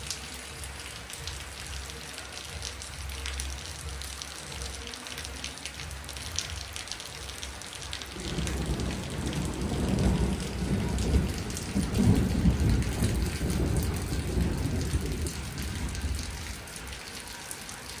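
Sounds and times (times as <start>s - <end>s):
rain on wet pavement: 0.0s - 18.0s
thunder rolling: 8.2s - 16.4s.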